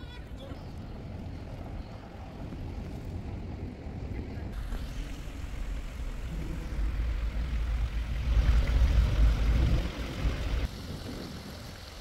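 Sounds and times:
wind buffeting microphone: 0.0s - 12.0s
water running down cascade: 4.6s - 12.0s.

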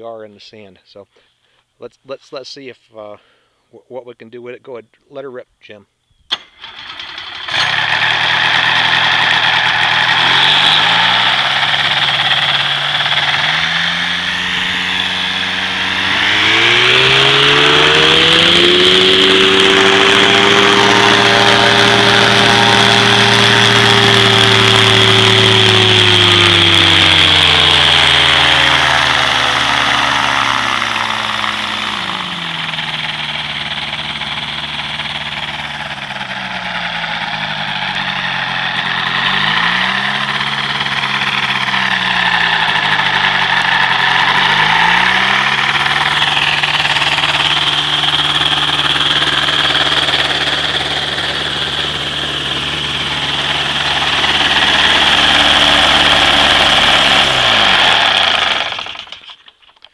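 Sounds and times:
aircraft engine turning propeller: 6.3s - 59.9s.

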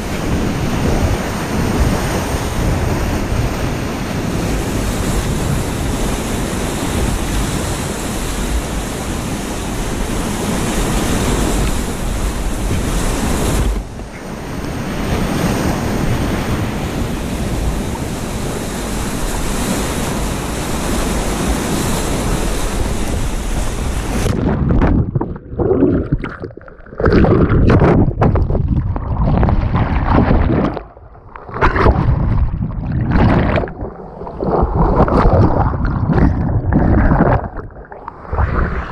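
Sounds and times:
muffled underwater churning: 22.4s - 38.9s.

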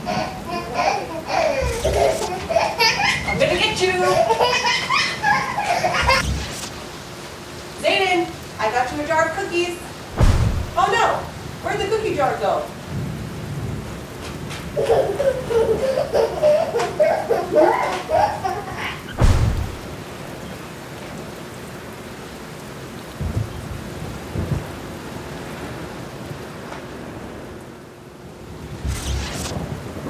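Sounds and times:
steady rain: 0.0s - 30.0s
person speaking: 1.5s - 2.4s, 7.8s - 12.6s
thunder clap and rumbles: 10.0s - 11.7s, 19.1s - 20.3s, 23.2s - 24.8s, 28.5s - 30.0s.

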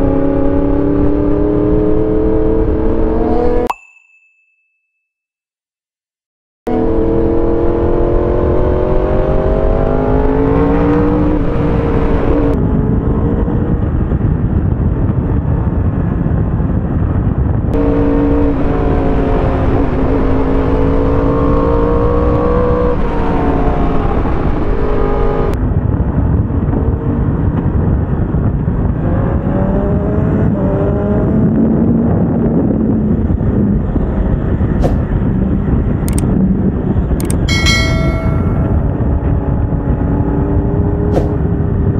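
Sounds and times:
motorcycle engine revving: 6.7s - 14.2s, 17.8s - 25.6s
wind noise: 6.7s - 41.9s.

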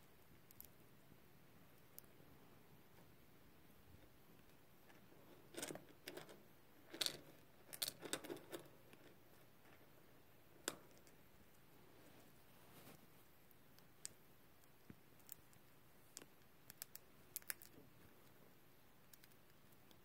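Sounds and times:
hamster crunching seed: 5.4s - 9.8s.

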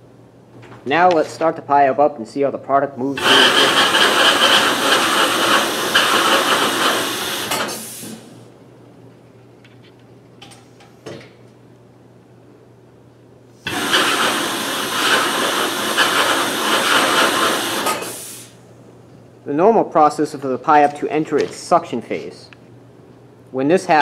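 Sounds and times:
vacuum pump hissing: 3.1s - 8.4s, 13.6s - 18.6s.

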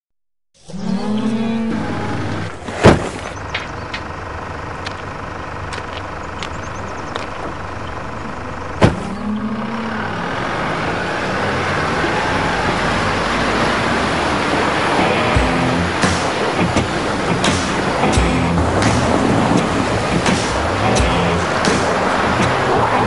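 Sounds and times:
low engine rumble: 0.7s - 23.0s
churning water: 7.1s - 23.0s.

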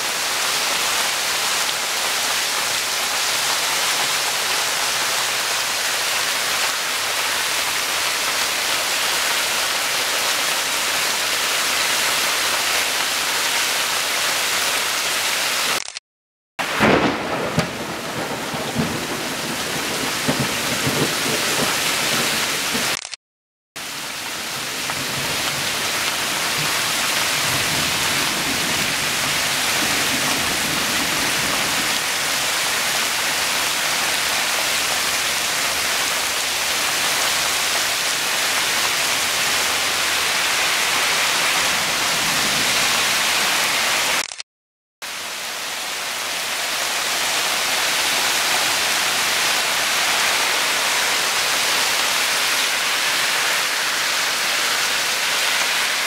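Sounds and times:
heavy rain pouring: 0.0s - 16.0s, 16.6s - 23.1s, 23.8s - 44.4s, 45.0s - 56.0s
thunder rumbling: 16.6s - 22.9s.

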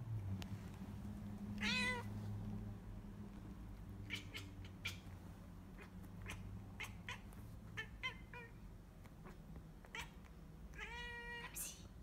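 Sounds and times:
cat chattering chirps: 4.0s - 5.1s, 5.8s - 8.6s.

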